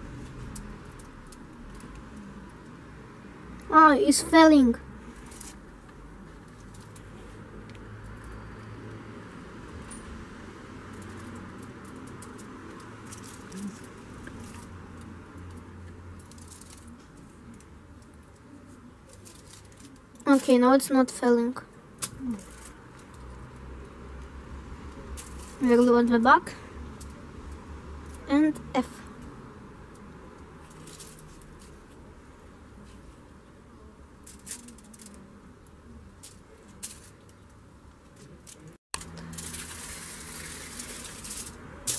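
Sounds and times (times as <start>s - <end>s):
plastic and foil rustling: 11.0s - 15.6s, 16.2s - 20.6s, 25.1s - 26.2s, 35.9s - 41.9s.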